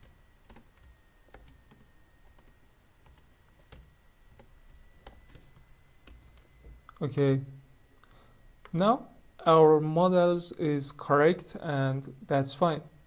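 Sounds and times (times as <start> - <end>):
computer keyboard keystrokes: 0.5 - 5.4.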